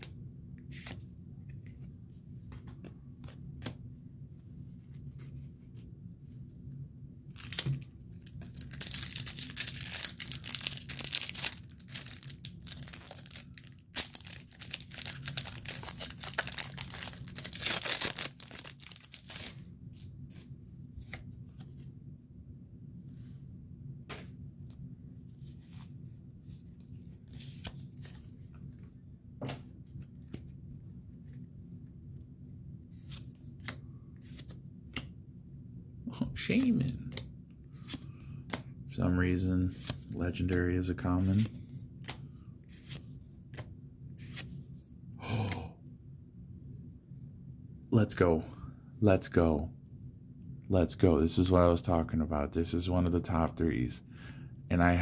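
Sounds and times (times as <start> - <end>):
foil wrapper tearing and crinkling: 8.4 - 19.7.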